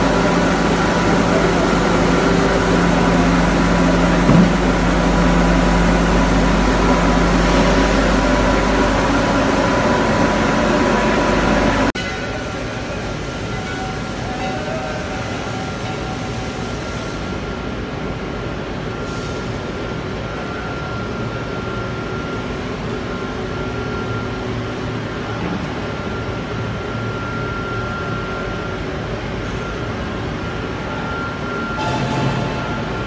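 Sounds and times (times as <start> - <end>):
thin steady whine: 0.0 - 18.2
machinery rushing hum: 0.0 - 33.0.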